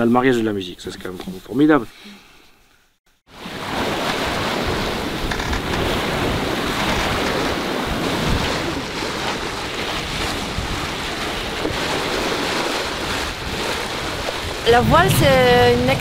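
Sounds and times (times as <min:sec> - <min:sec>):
water rushing along a boat hull: 0:03.3 - 0:16.0
wind buffeting microphone: 0:04.0 - 0:16.0.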